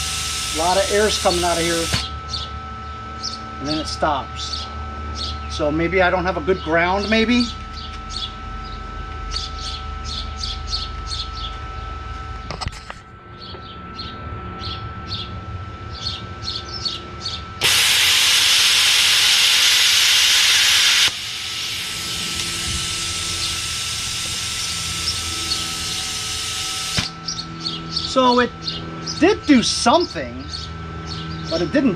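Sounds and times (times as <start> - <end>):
plasma cutter torch hissing: 0.0 - 2.1, 17.6 - 27.2.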